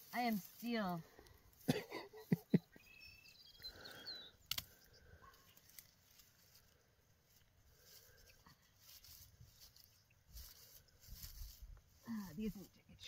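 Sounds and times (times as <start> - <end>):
faint bird chirps: 2.2 - 5.7
hand pruners snipping: 4.4 - 4.8.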